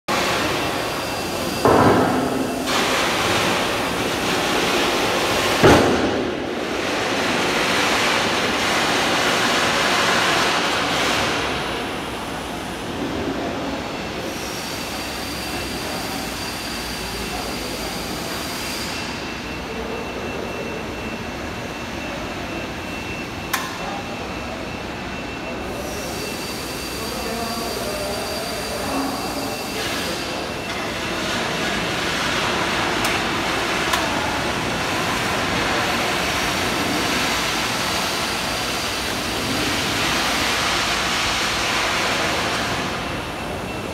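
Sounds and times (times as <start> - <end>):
loud mechanical knock: 1.6 - 3.3, 5.6 - 6.4.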